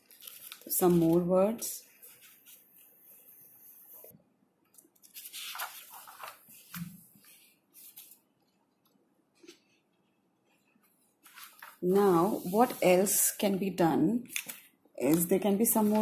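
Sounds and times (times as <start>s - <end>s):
paper page rustling: 0.0s - 4.1s, 5.0s - 8.2s, 11.2s - 13.1s, 14.4s - 16.0s.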